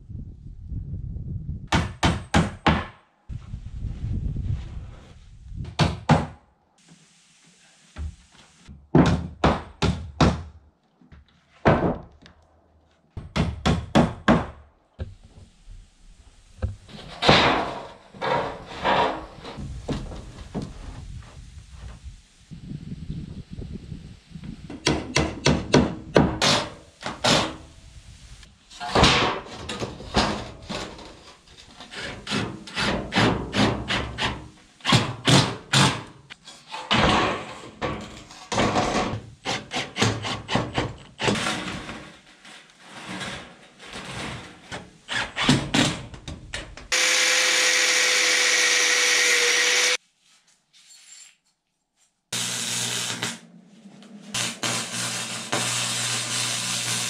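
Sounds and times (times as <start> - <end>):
steel roofing panels on wood: 15.0 - 22.0, 24.7 - 47.2, 52.4 - 57.0.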